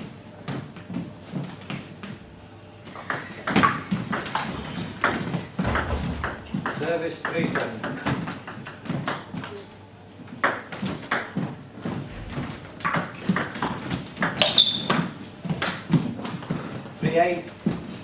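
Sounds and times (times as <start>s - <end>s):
table tennis ball hits: 2.9s - 9.6s, 10.4s - 16.8s
short high squeaks: 3.2s - 5.0s, 13.6s - 15.0s.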